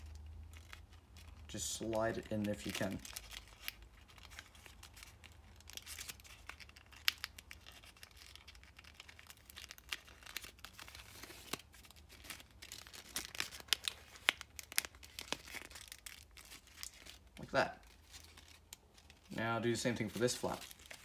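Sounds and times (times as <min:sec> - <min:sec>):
paper crinkling and rustling: 0:00.0 - 0:21.0
sharp paper crackles: 0:00.0 - 0:21.0.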